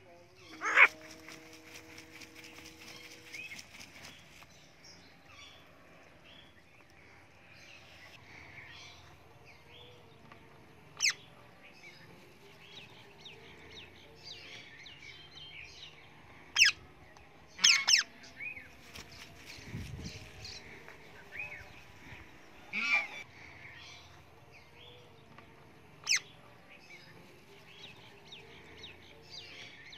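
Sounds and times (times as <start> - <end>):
parrots chirping and twittering: 0.4 - 3.9, 11.0 - 11.2, 16.5 - 16.8, 17.6 - 18.1, 26.0 - 26.3
parrot shrieking: 0.6 - 0.9.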